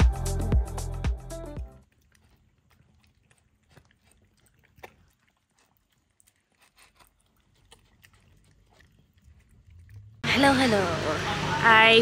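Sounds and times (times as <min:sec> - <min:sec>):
dogs chewing food: 0:01.8 - 0:10.3.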